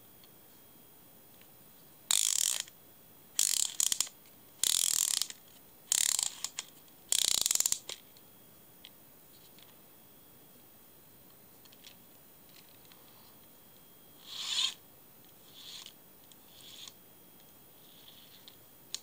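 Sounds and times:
fly reel ratcheting: 2.1 - 2.7, 3.4 - 5.3, 5.9 - 8.0, 14.3 - 14.8.

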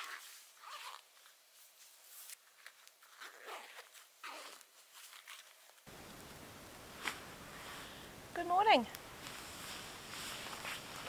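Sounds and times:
clothing rustling and scraping: 0.0 - 5.9, 9.1 - 11.0
steady hiss: 5.9 - 11.0.

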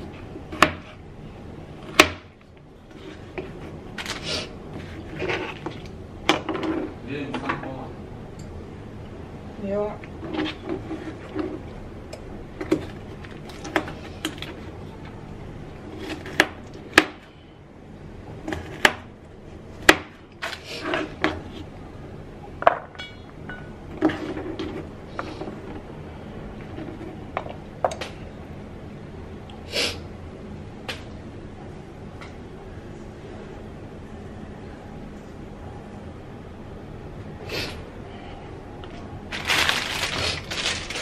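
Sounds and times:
scraping and rustling: 2.9 - 5.8, 10.2 - 11.8, 23.9 - 25.9, 39.3 - 41.0.

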